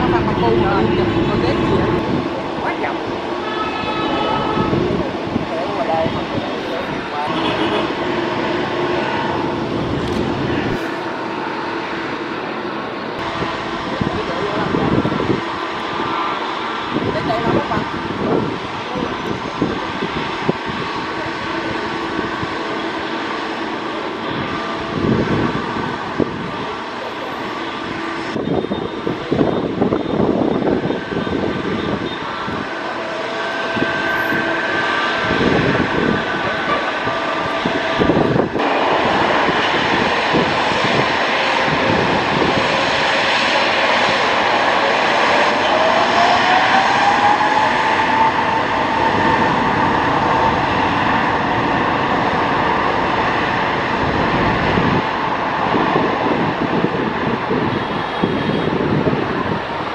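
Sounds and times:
jet engines running: 0:00.0 - 0:59.9
engine whine rising in pitch: 0:20.2 - 0:55.6.

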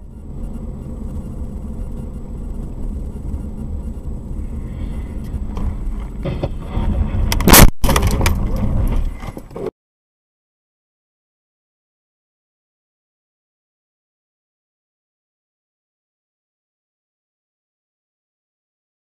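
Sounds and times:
car road and engine noise: 0:00.0 - 0:09.7
loud crash bang: 0:05.6 - 0:09.1
jolting and scraping: 0:05.6 - 0:09.7.

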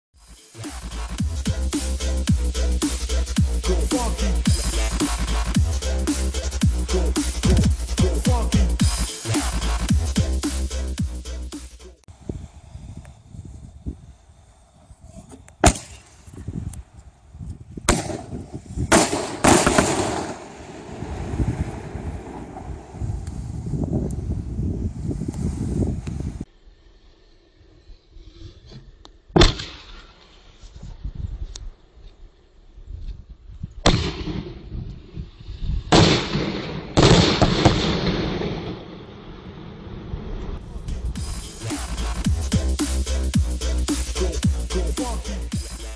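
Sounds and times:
firework bangs with echo: 0:17.9 - 0:23.0, 0:35.9 - 0:39.2.

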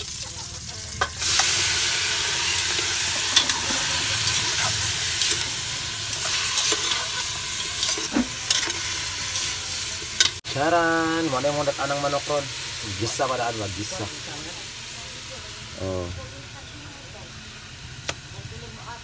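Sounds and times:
chicken sizzling in a pot: 0:00.0 - 0:19.0
metal ladle scraping a pot: 0:01.0 - 0:10.4.

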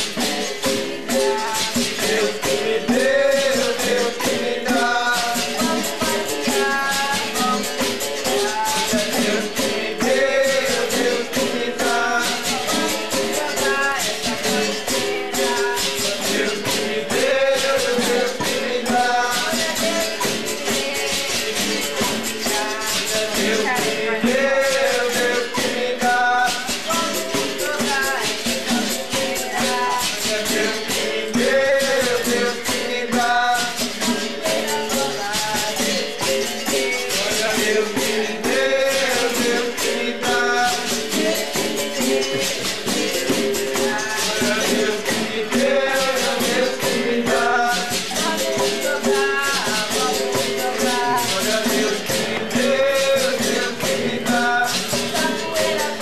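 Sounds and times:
shakers: 0:00.0 - 0:56.0
tambourines: 0:00.0 - 0:56.0
voices singing: 0:00.0 - 0:56.0.

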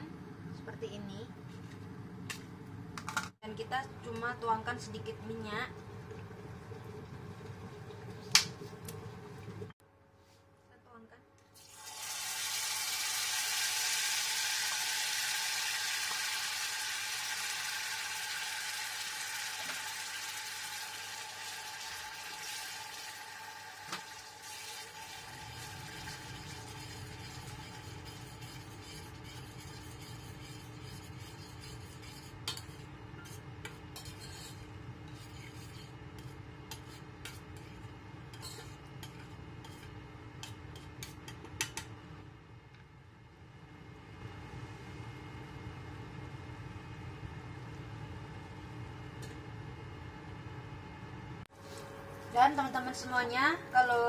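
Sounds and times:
paste sizzling in hot oil: 0:11.6 - 0:41.2
metal spoon scraping pan: 0:25.5 - 0:41.8.

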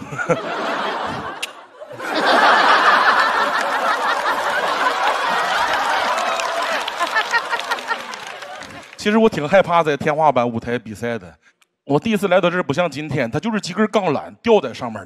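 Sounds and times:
studio audience laughing: 0:00.0 - 0:09.0.

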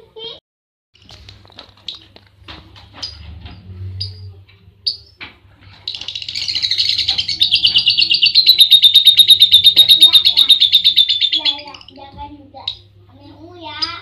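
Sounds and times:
lovebird chirping: 0:05.8 - 0:12.0.

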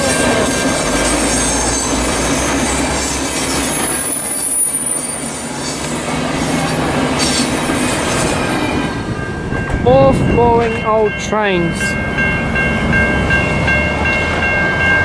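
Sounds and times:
high-pitched wheel squeal: 0:00.0 - 0:08.7
train wheels rumbling on rails: 0:00.0 - 0:15.0.

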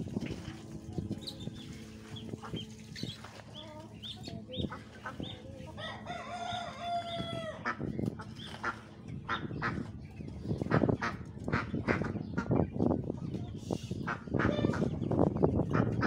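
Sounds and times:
chicks peeping: 0:00.2 - 0:16.0
rooster crowing: 0:05.8 - 0:07.6.

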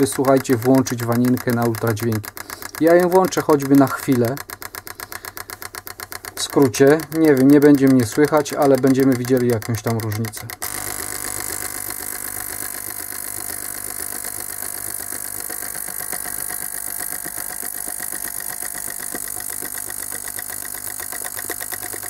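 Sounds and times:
solenoid valve chattering: 0:00.0 - 0:22.0
ultrasonic bath hissing buzz: 0:10.7 - 0:22.0.

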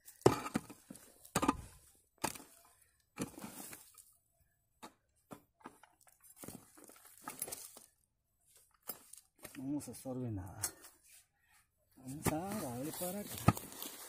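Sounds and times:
loosened soil rattling: 0:05.4 - 0:10.0, 0:12.0 - 0:14.0.

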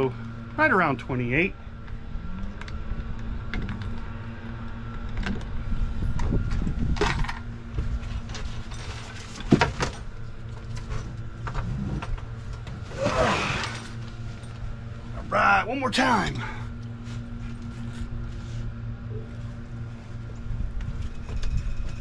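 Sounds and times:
trolling motor humming: 0:00.0 - 0:22.0.

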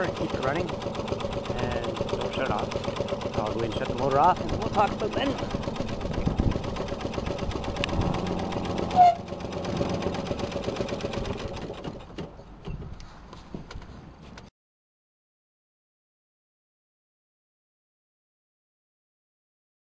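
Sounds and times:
engine putt-putting: 0:00.0 - 0:14.5.

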